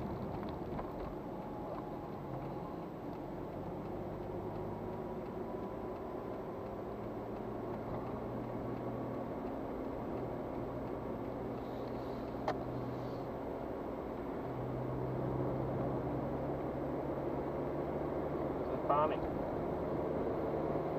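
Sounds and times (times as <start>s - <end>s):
car engine and tyre drone: 0.0s - 20.9s.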